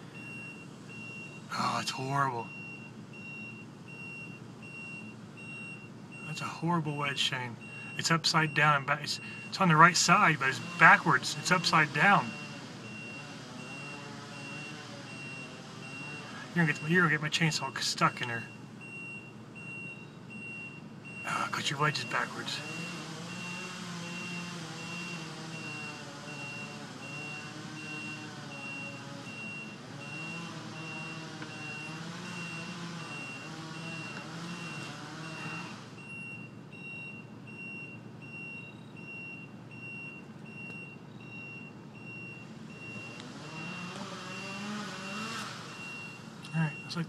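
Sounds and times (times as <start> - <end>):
chainsaw cutting a tree: 10.3 - 16.6, 22.6 - 36.0, 43.0 - 45.8.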